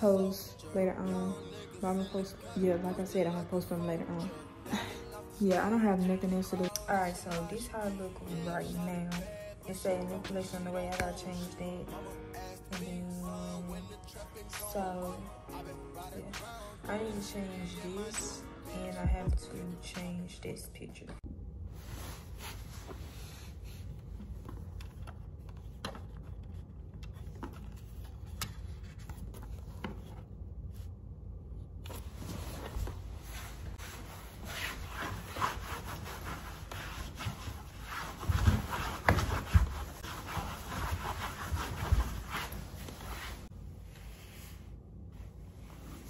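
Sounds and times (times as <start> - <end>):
paper rubbing and rustling: 21.8 - 30.9, 31.8 - 43.5.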